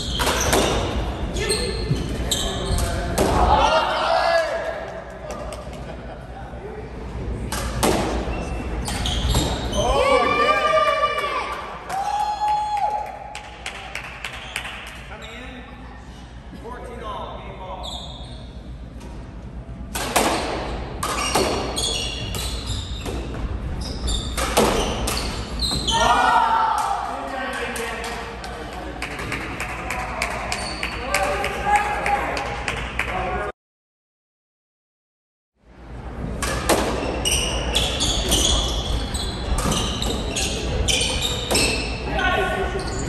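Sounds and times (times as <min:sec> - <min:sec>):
shoes squeaking on hardwood floor: 0:00.0 - 0:03.0, 0:21.2 - 0:26.1.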